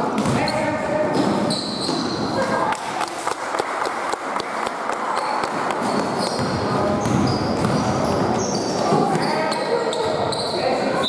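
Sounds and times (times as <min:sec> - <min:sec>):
noise of players in hall: 0:00.0 - 0:11.0
basketball bouncing: 0:00.2 - 0:00.6, 0:04.3 - 0:09.4
sneakers squeaking on floor: 0:00.2 - 0:02.5, 0:05.0 - 0:11.0.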